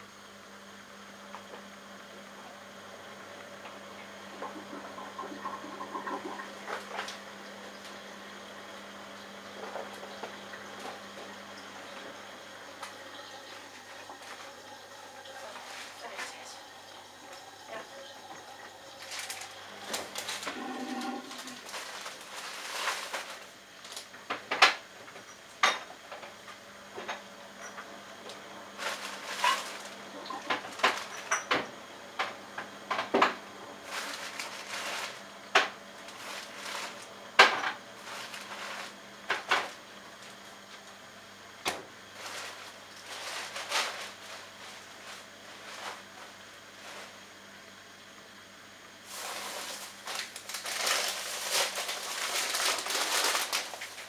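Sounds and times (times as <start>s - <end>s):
washing machine drum humming: 0.0s - 54.0s
pots and dishes clattering: 28.9s - 31.7s.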